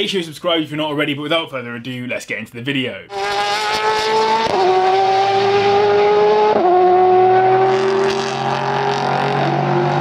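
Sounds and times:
car engine revving and shifting: 0:03.1 - 0:10.0.

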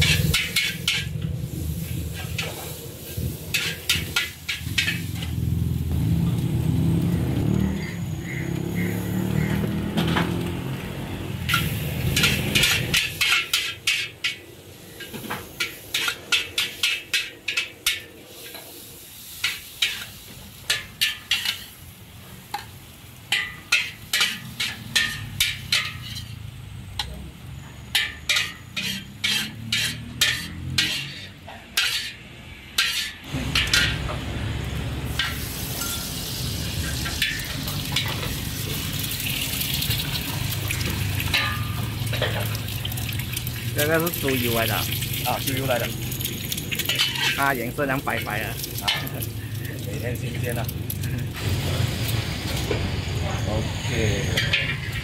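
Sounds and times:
metal spatula scraping a wok: 0:00.0 - 0:05.5, 0:11.3 - 0:22.6, 0:23.2 - 0:27.1, 0:27.8 - 0:34.2, 0:35.1 - 0:39.2, 0:40.3 - 0:42.5, 0:46.7 - 0:47.7, 0:54.1 - 0:55.0
sizzling in a wok: 0:00.0 - 0:55.0.

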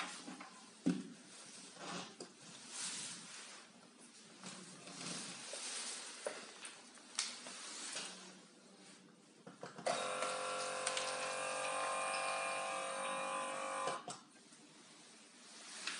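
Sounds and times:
electric water pump humming: 0:09.8 - 0:14.2
water pouring into plastic cup: 0:10.2 - 0:12.4.

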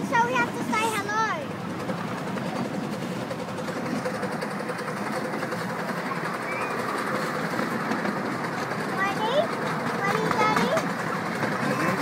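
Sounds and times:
miniature train wheels on rails: 0:00.0 - 0:12.0.

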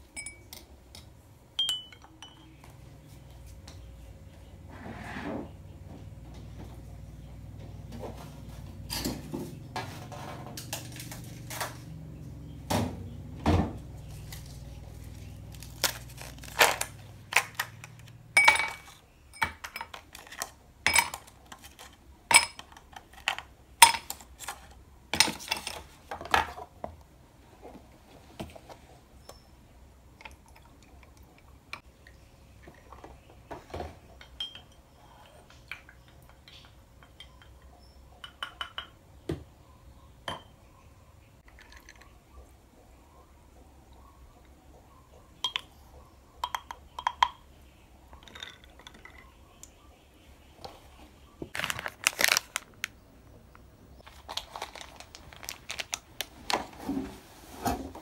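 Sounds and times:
spoon stirring in a mug: 0:00.1 - 0:02.7, 0:34.2 - 0:38.9
kitchenware clanking: 0:00.2 - 0:02.6, 0:16.2 - 0:22.8, 0:33.6 - 0:39.0
ice cubes clinking into glass: 0:48.2 - 0:49.2.

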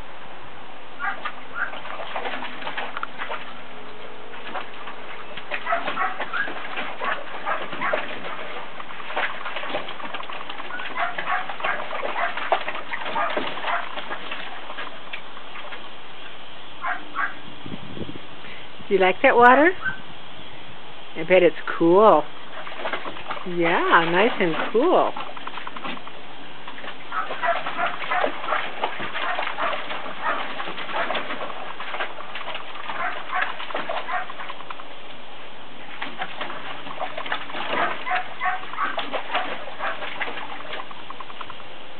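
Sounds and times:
dog splashing through water: 0:01.0 - 0:16.0, 0:21.8 - 0:41.8.

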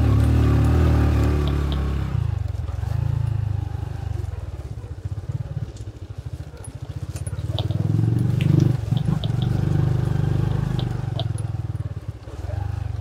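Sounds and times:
bike clicking and knocking on stones: 0:00.0 - 0:02.0, 0:05.6 - 0:12.0
motorcycle engine pulling uphill: 0:00.0 - 0:13.0.

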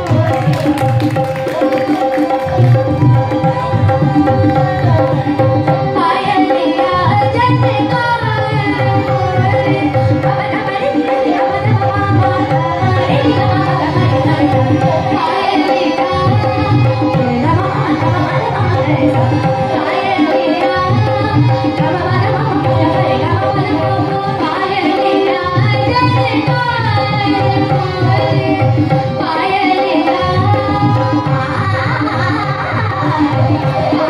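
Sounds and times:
tabla playing: 0:00.0 - 0:34.0
tanpura drone: 0:00.0 - 0:34.0
girl singing: 0:01.6 - 0:34.0.

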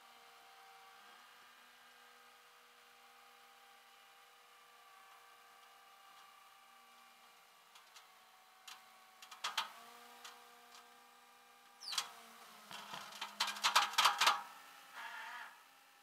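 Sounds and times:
metal hardware clicks and clanks: 0:12.8 - 0:14.4.

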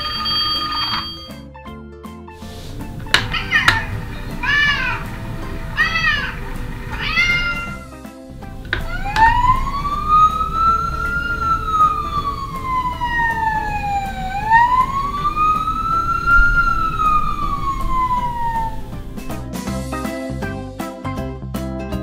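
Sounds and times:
wailing siren: 0:00.0 - 0:01.1, 0:03.1 - 0:07.9, 0:08.6 - 0:19.5
light background music: 0:00.0 - 0:22.0.

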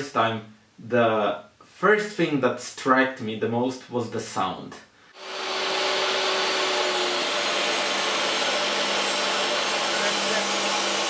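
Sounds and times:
table saw cutting wood: 0:05.2 - 0:11.0.

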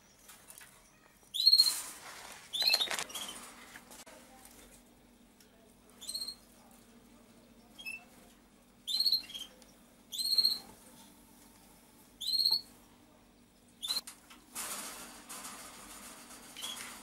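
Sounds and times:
bird peeping: 0:01.0 - 0:01.9, 0:02.5 - 0:03.4, 0:06.0 - 0:06.4, 0:08.8 - 0:10.7, 0:12.2 - 0:12.7, 0:13.8 - 0:14.0.

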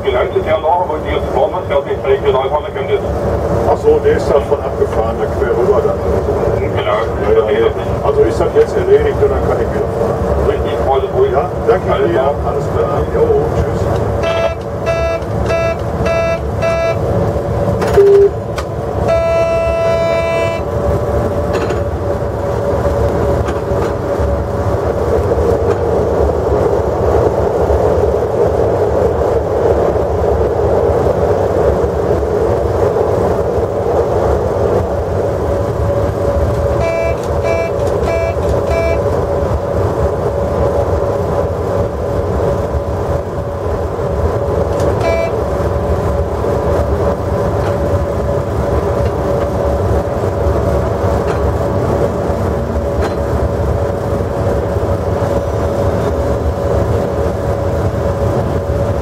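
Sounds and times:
locomotive running noise: 0:00.0 - 0:59.0
passing freight train rushing: 0:00.0 - 0:59.0
brief sharp tone: 0:14.2 - 0:17.0, 0:17.9 - 0:18.4, 0:19.1 - 0:20.6, 0:36.8 - 0:39.0, 0:45.0 - 0:45.4
short beeps: 0:14.2 - 0:17.0, 0:17.9 - 0:18.4, 0:19.1 - 0:20.6, 0:36.8 - 0:39.0, 0:45.0 - 0:45.4
pitched horn-like tone: 0:14.2 - 0:17.1, 0:17.9 - 0:18.4, 0:19.0 - 0:20.7, 0:36.8 - 0:39.2, 0:44.8 - 0:45.4.

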